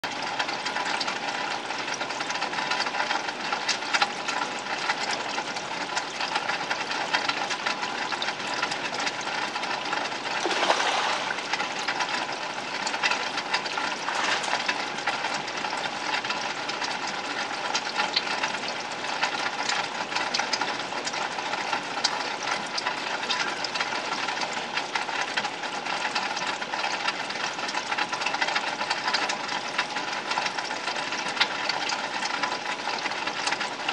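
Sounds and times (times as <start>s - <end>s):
water splashing in a pond: 6.4s - 27.0s.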